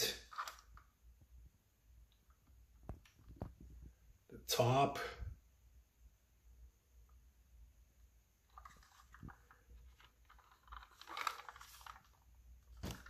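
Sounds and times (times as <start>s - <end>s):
toy model rustling and clicking: 0.2s - 0.9s, 8.4s - 13.0s.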